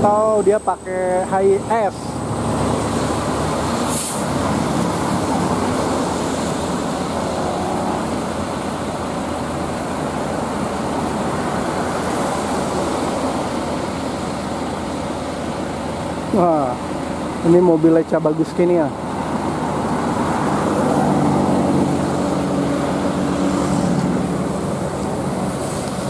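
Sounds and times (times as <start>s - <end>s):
diesel bus engines idling: 0.0s - 26.0s
short hiss: 3.9s - 4.3s.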